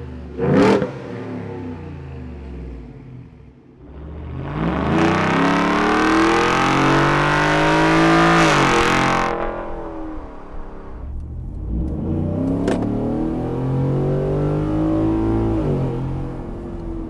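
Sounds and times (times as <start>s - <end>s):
car exhaust under hard acceleration: 0.0s - 17.0s.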